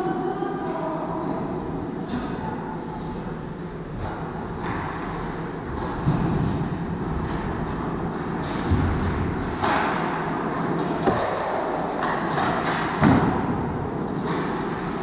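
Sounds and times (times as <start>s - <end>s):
noisy rink background: 0.0s - 15.0s
hockey sticks and puck knocking: 7.2s - 15.0s.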